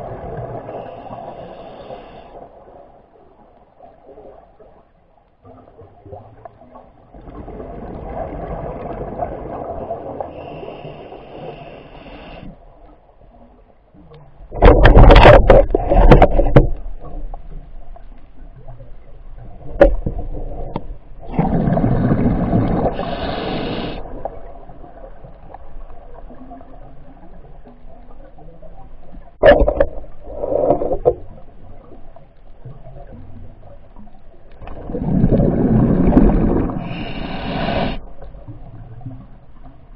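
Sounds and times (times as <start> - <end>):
rushing gurgling bubbles underwater: 5.5 - 11.0, 14.4 - 39.9.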